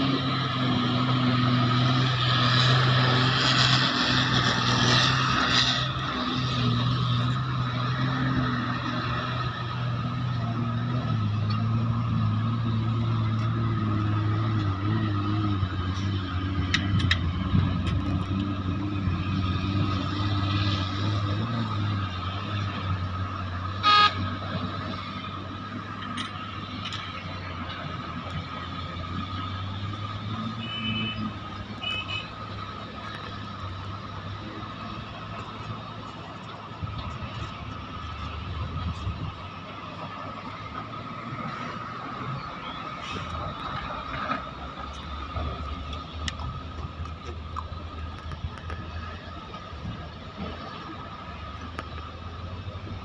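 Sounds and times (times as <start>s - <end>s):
dump truck diesel engine: 0.0s - 53.0s
horn toot: 23.8s - 24.5s, 30.4s - 32.6s.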